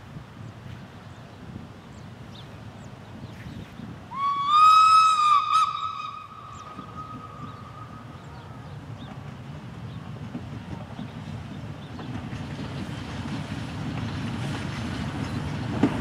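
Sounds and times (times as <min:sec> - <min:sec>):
low wind rumble: 0:00.0 - 0:16.0
locomotive whistle: 0:04.1 - 0:08.4.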